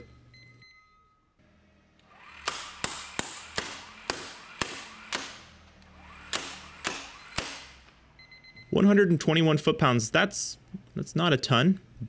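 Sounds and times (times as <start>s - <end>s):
impact wrench motor hum: 1.4s - 8.1s
impact wrench hammering clacks: 2.0s - 8.0s.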